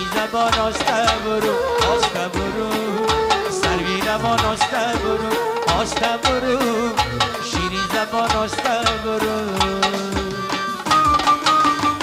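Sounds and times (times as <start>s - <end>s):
accordion melody: 0.0s - 12.0s
frame drum beat: 0.0s - 12.0s.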